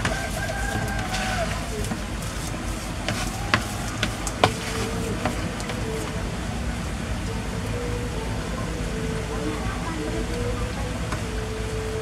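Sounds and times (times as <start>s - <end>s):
spatula stirring dough: 0.0s - 5.8s.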